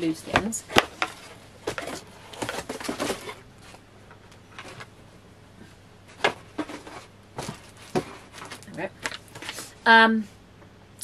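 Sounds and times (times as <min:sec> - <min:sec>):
items rustling in cardboard box: 0:00.3 - 0:03.9, 0:04.5 - 0:05.0, 0:06.0 - 0:09.8.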